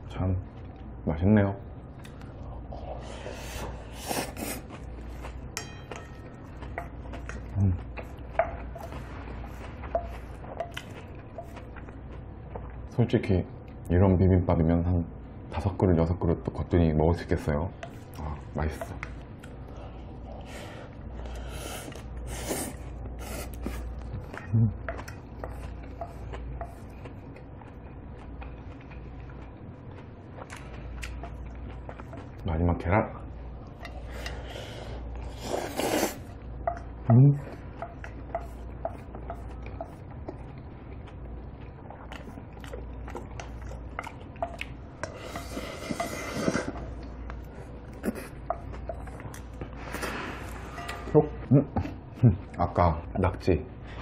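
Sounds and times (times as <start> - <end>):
chewing mouth sounds: 6.2 - 12.9, 21.3 - 32.4, 35.0 - 52.6.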